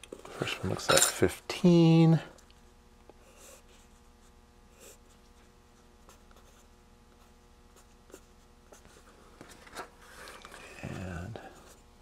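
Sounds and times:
low steady hum: 0:00.0 - 0:12.0
pencil scratching on paper: 0:03.2 - 0:05.2, 0:06.0 - 0:09.1.

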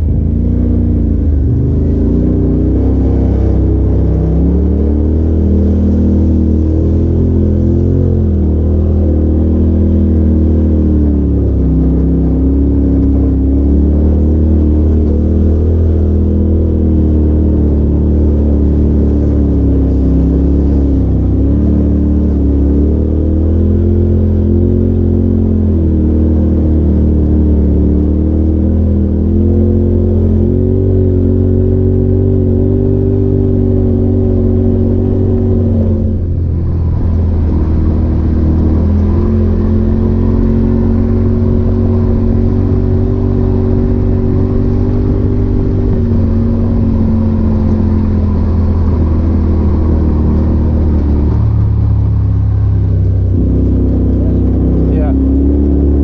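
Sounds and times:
off-road vehicle engine running: 0:00.0 - 0:56.0.

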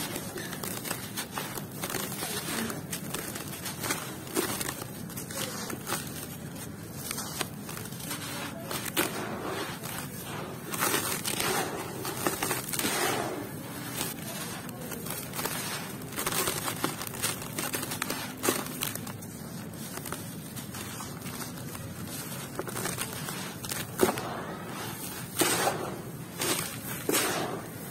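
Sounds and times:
dry cement clumps crunching: 0:00.0 - 0:27.9
sand grains sifting through fingers: 0:05.5 - 0:27.9.

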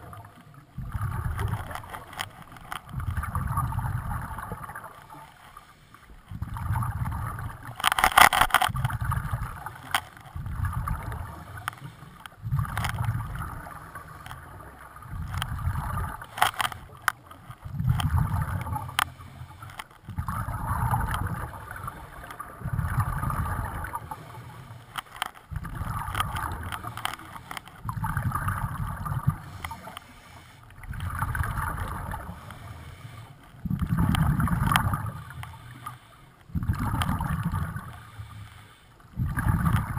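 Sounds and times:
exhaled bubbles rumbling underwater: 0:00.0 - 0:05.4, 0:06.0 - 0:07.8, 0:08.7 - 0:24.9, 0:25.5 - 0:38.4, 0:39.0 - 0:39.9
regulator hissing inhale: 0:29.4 - 0:30.8, 0:32.2 - 0:33.5, 0:35.3 - 0:36.4, 0:37.9 - 0:39.0.

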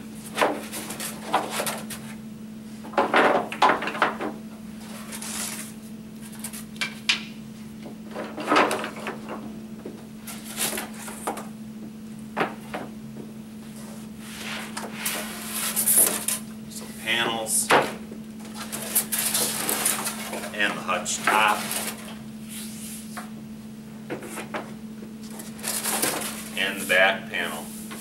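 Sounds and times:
panels scraping: 0:13.6 - 0:23.2, 0:25.2 - 0:28.0.

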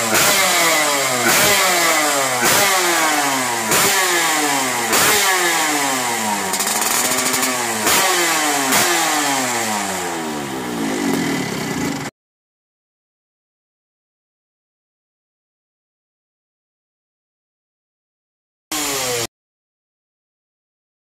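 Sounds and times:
motorcycle engine revving: 0:00.0 - 0:12.1, 0:18.7 - 0:19.3.

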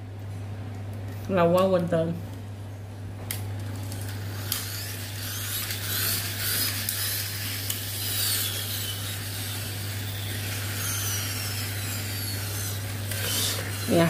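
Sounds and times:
toy spring motors whirring: 0:03.8 - 0:14.0.

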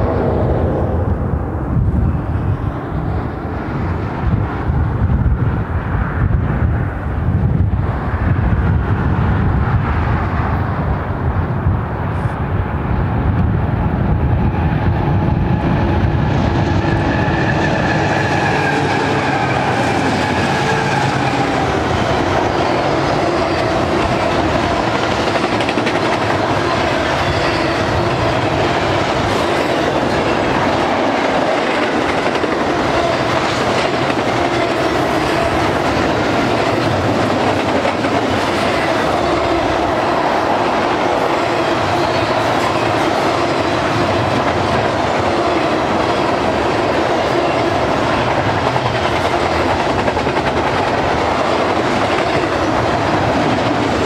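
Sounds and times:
freight cars rolling clickety-clack: 0:14.2 - 0:54.0.

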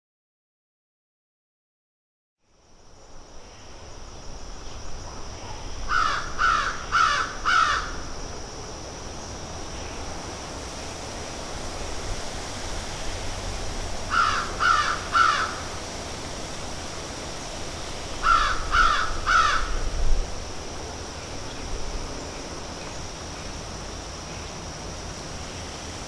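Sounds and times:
steady background hiss: 0:02.4 - 0:26.0
crows cawing: 0:05.9 - 0:08.0, 0:14.1 - 0:15.7, 0:18.2 - 0:19.9.

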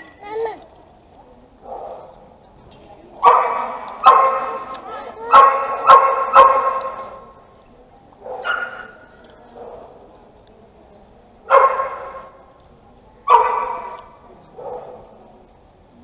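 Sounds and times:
dog barking: 0:01.6 - 0:02.1, 0:03.2 - 0:07.3, 0:08.2 - 0:09.0, 0:11.5 - 0:12.4, 0:13.3 - 0:15.2.

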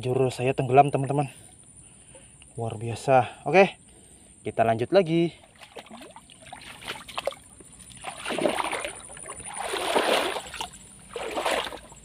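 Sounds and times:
water swishing: 0:05.6 - 0:12.0.

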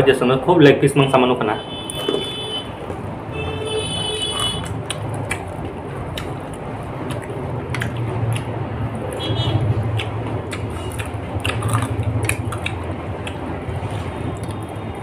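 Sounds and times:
steady low hum: 0:01.6 - 0:15.0
biting and chewing chicken: 0:04.2 - 0:15.0
wet mouth clicks and smacks: 0:04.3 - 0:15.0.

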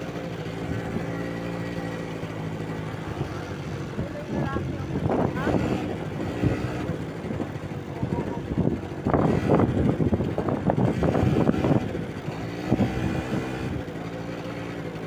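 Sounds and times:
quad bike engine idling: 0:00.0 - 0:15.0
people talking: 0:03.2 - 0:06.0, 0:07.4 - 0:08.8.

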